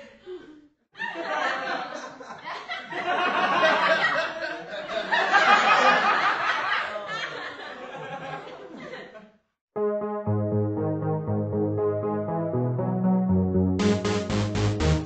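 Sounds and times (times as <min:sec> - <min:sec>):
people laughing: 0:01.0 - 0:09.4.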